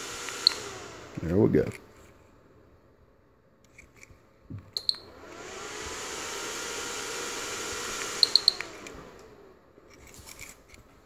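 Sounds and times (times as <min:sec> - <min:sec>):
fan winding down: 0:00.0 - 0:02.0, 0:04.9 - 0:10.1
fan blowing air: 0:00.0 - 0:02.6, 0:05.0 - 0:10.2
relay click: 0:00.2 - 0:01.9, 0:07.9 - 0:09.4.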